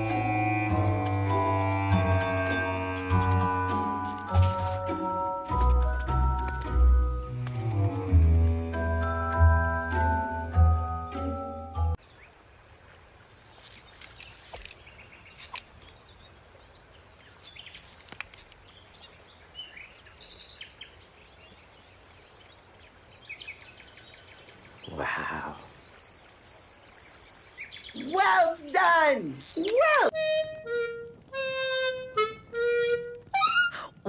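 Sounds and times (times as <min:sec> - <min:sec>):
birds chirping: 0:18.6 - 0:30.2.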